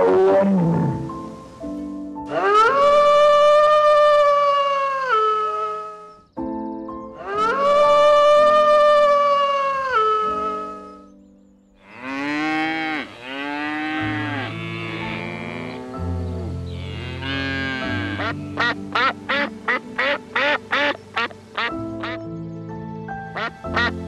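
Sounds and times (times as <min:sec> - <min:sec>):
soft piano music: 0:00.0 - 0:24.0
wildebeest lowing: 0:02.3 - 0:06.1, 0:07.2 - 0:11.0, 0:11.8 - 0:22.2, 0:23.3 - 0:24.0
duck quacking: 0:17.4 - 0:22.2, 0:23.4 - 0:24.0.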